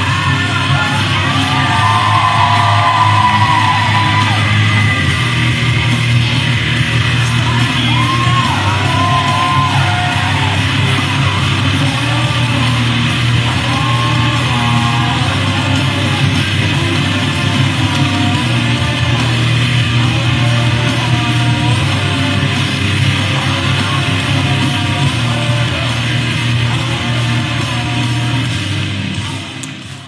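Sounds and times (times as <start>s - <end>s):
guitar: 0.0s - 30.0s
person singing: 0.0s - 30.0s
steady bass: 0.0s - 30.0s.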